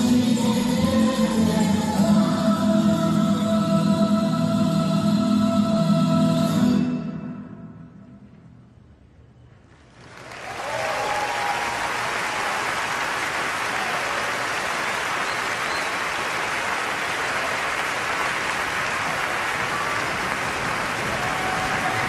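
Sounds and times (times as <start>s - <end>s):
audience applause: 9.9s - 22.0s.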